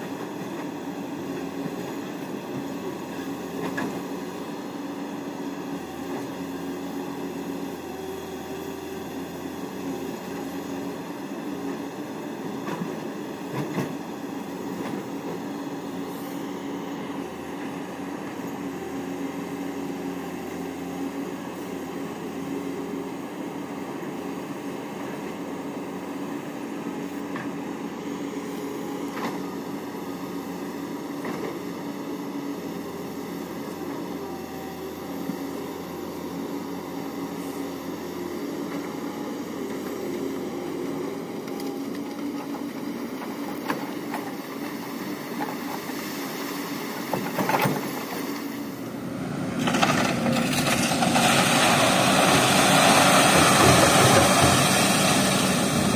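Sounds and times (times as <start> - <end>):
excavator diesel engine running: 0.0 - 55.9.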